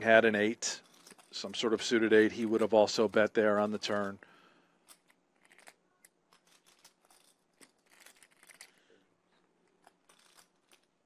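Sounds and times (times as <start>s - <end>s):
poker chips clicking: 0.8s - 4.1s, 4.8s - 8.8s, 9.6s - 10.9s.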